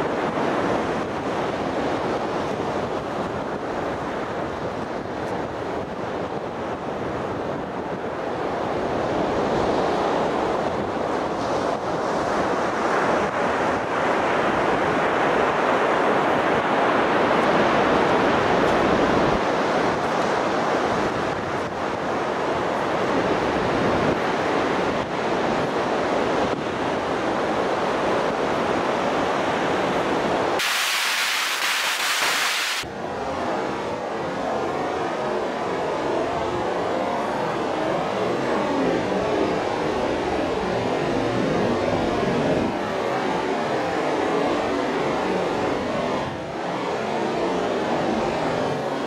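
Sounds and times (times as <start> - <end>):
breaking surf: 30.6 - 32.9.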